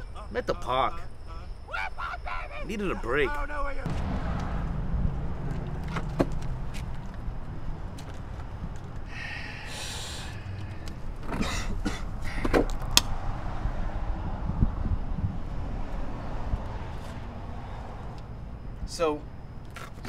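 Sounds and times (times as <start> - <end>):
low background rumble: 3.7 - 19.7
knocks and clicks: 5.4 - 9.0.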